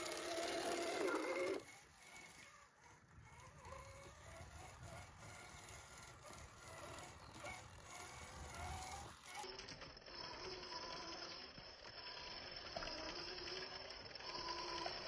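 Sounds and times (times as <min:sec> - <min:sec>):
electric motor and gears whine: 0:00.0 - 0:15.0.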